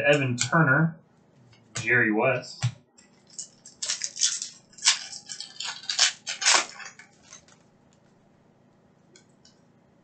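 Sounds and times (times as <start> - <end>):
wrapper crinkling and tearing: 3.2 - 7.6.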